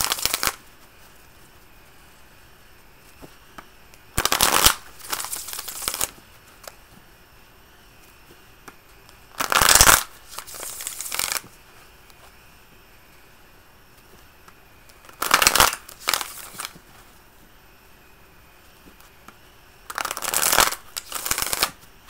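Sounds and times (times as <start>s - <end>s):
cards being shuffled: 0.0s - 1.1s, 4.2s - 6.8s, 9.3s - 11.5s, 14.9s - 16.9s, 19.9s - 21.9s.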